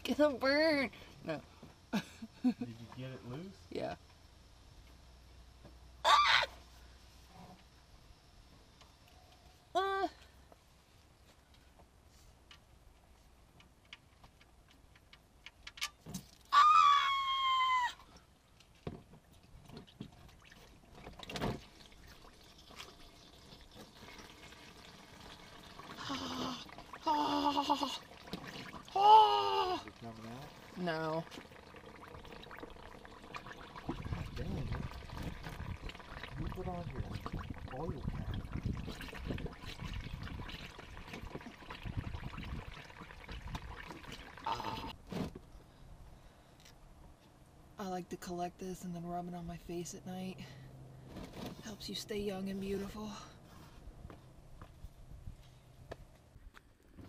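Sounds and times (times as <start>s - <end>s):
oil trickling into pan: 19.8s - 27.0s, 29.5s - 44.6s.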